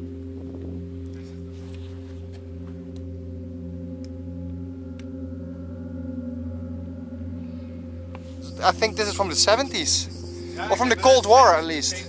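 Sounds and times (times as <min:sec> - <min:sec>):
low sustained drone music: 0:00.0 - 0:12.0.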